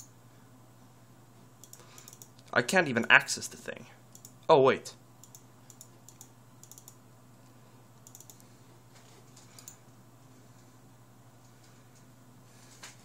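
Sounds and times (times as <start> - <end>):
steady low hum: 0.0 - 13.0
computer keys clicking: 1.6 - 2.5, 4.1 - 4.5, 5.2 - 7.0, 8.0 - 8.5, 9.4 - 9.8.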